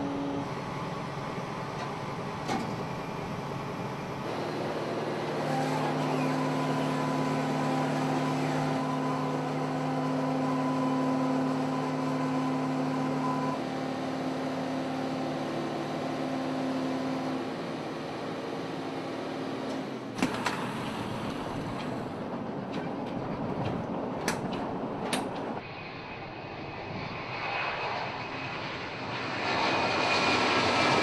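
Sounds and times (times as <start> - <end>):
machinery humming: 0.0 - 25.6.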